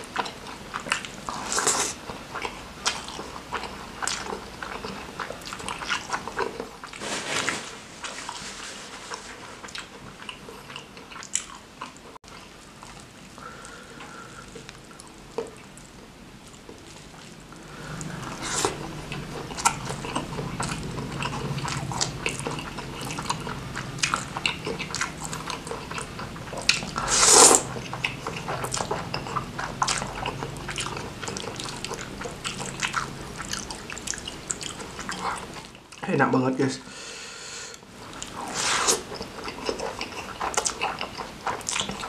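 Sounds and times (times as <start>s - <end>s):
wet chewing mouth sounds: 0.0s - 7.0s, 9.0s - 36.0s, 38.0s - 42.0s
loud noodle slurp: 17.8s - 18.9s, 27.0s - 27.8s, 38.4s - 39.1s.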